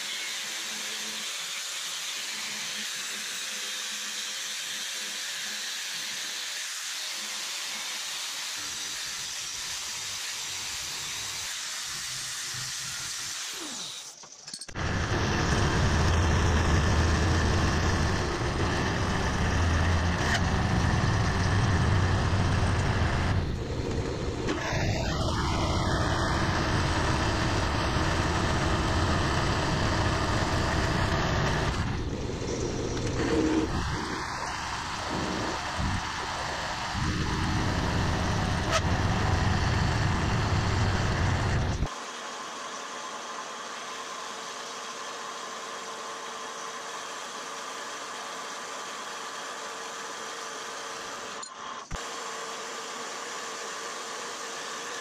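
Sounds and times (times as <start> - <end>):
angle grinder grinding steel: 0.0 - 41.9
milling machine cutting metal: 0.0 - 55.0.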